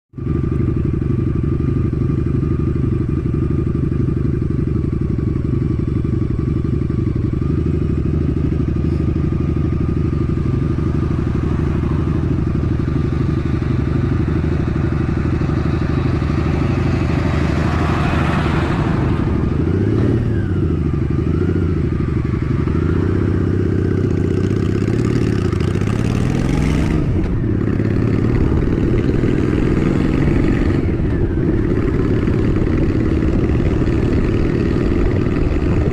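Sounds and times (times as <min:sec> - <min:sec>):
motorcycle engine: 0:00.2 - 0:35.9
truck passing: 0:08.9 - 0:23.4.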